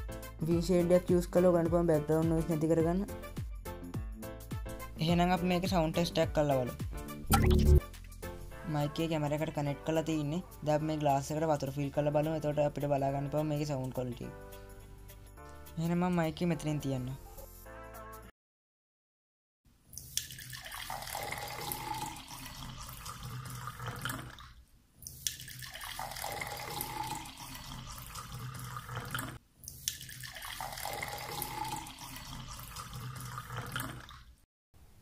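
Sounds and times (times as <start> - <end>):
water pouring into a glass: 20.0 - 34.3.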